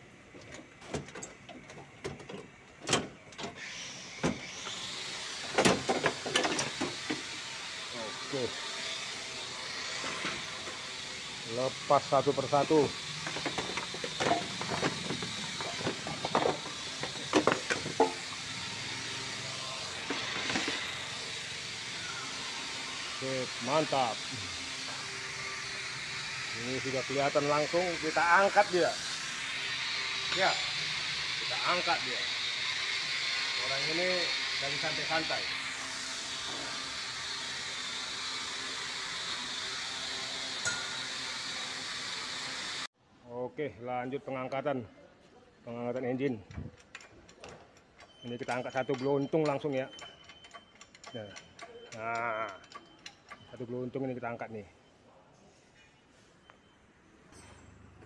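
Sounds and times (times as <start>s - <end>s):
workshop background hiss: 0.0s - 43.6s, 47.7s - 57.6s
knocks and clanks of car parts: 0.4s - 3.6s, 5.5s - 7.2s, 13.2s - 18.2s.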